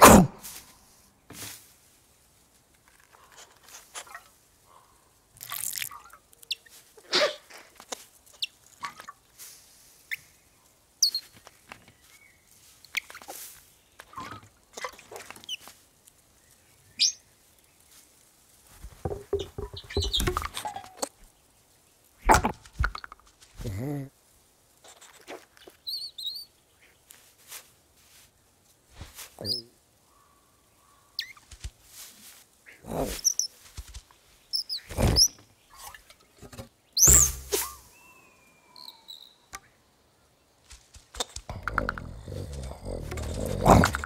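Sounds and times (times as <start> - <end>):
short high chirp: 37.0 - 38.1
scrabbling clicks: 41.1 - 44.0.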